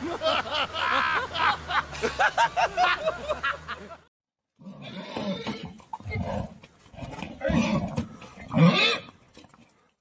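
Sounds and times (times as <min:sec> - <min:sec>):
horses neighing: 0:04.6 - 0:09.4.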